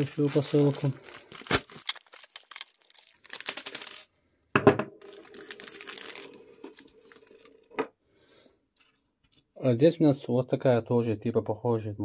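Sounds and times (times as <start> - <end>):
plastic packaging rustling: 0.0 - 4.1, 5.0 - 7.7.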